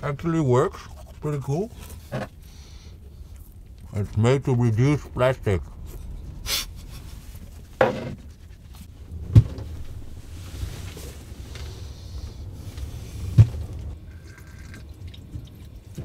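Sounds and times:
toothbrush scrubbing: 0.6s - 2.2s, 5.6s - 8.9s
sharp thumps: 7.8s - 8.3s
storm wind rumbling: 8.8s - 15.9s.

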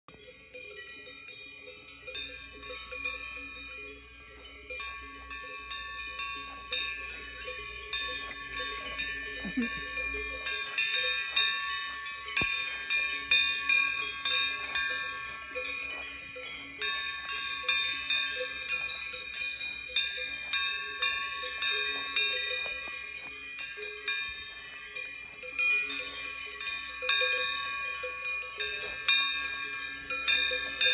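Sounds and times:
cowbell clanking: 0.1s - 30.9s.

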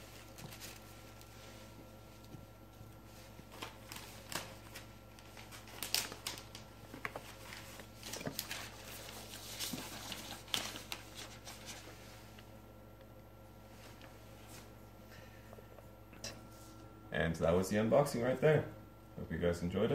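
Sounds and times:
faint steady hum: 0.0s - 19.9s
packaging clicks and rustles: 3.5s - 11.7s.

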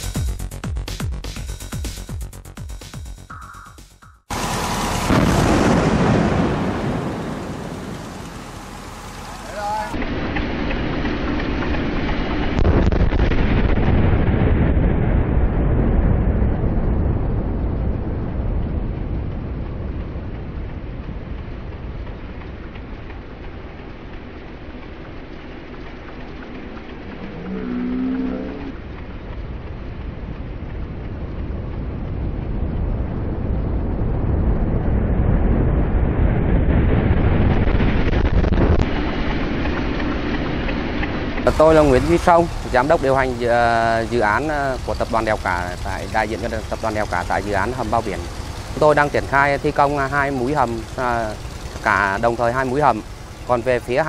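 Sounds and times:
deep rumble: 3.3s - 54.0s
explosive charges cracking: 3.4s - 8.5s, 10.0s - 21.9s, 30.0s - 52.3s.

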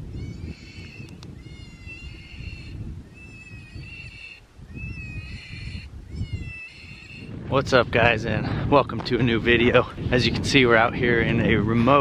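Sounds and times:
electronic animal distress cry: 0.1s - 7.3s.

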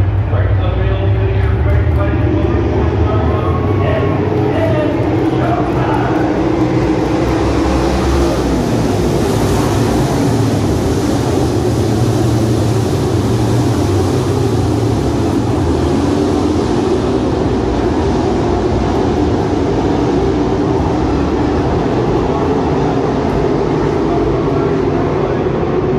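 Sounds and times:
race car engines din: 0.0s - 25.9s.

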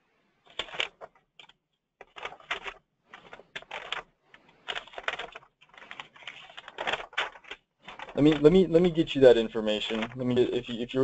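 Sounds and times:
computer keyboard typing: 0.5s - 4.0s, 4.6s - 8.7s, 9.7s - 10.4s.

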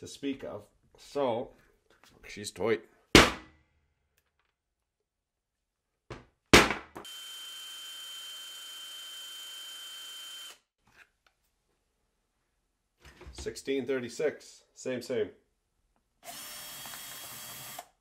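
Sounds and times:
sharp knock: 3.2s - 3.6s
impact wrench motor whine: 7.0s - 10.6s.

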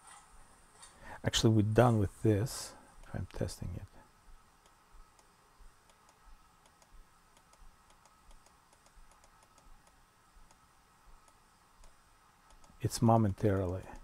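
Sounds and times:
faint steady hum: 0.0s - 14.0s
light ticking: 4.6s - 14.0s.

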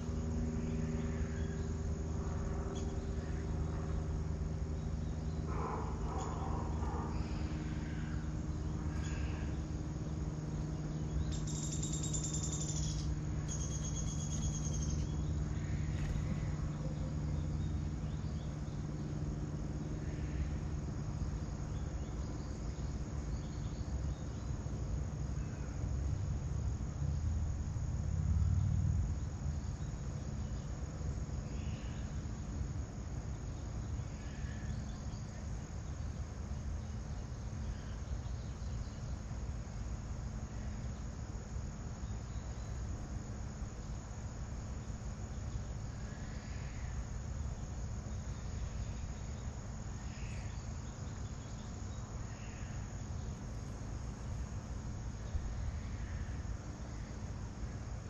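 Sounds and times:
crickets trilling: 0.0s - 58.0s
faint bird chirps: 4.8s - 9.7s, 10.6s - 18.8s
low rumble: 27.2s - 29.4s.

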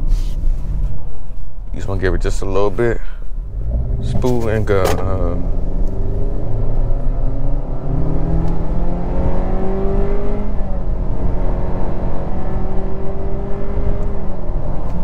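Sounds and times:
car engine accelerating hard: 3.4s - 15.0s.

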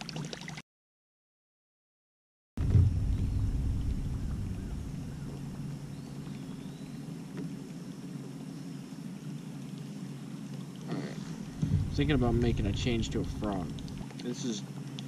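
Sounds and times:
low water rumble: 2.6s - 15.0s.

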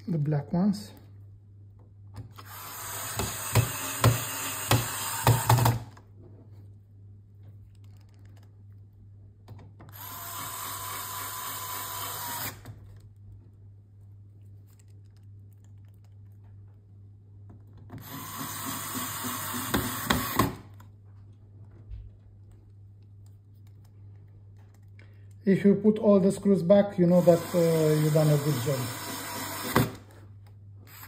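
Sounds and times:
electric screwdriver motor: 2.4s - 5.8s, 9.9s - 12.6s, 18.0s - 20.6s, 27.2s - 30.0s.

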